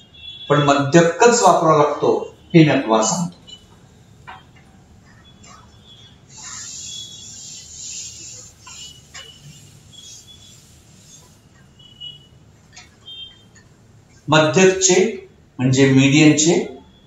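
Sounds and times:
eraser squeaking on board: 3.4s - 14.3s
duster wiping whiteboard: 5.4s - 15.0s.

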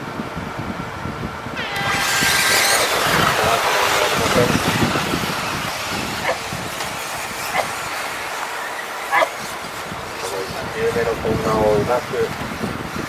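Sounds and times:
rc car motors and tyres hissing: 1.6s - 13.0s.

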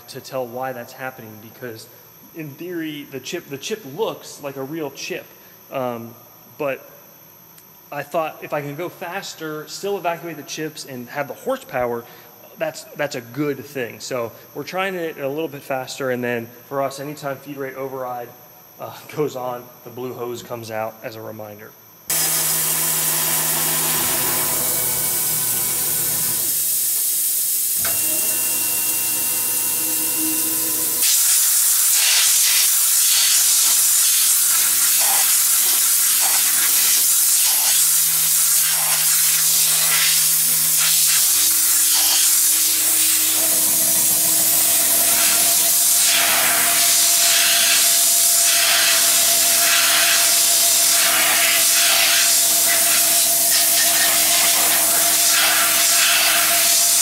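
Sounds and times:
milling machine cutting metal: 22.1s - 27.1s, 27.7s - 57.0s
compressed air hiss: 29.2s - 57.0s.

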